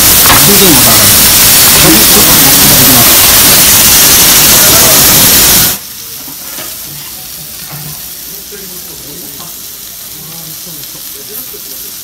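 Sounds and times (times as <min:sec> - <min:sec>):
loud rush of noise: 0:00.0 - 0:05.8
steak sizzling on iron plate: 0:00.0 - 0:12.0.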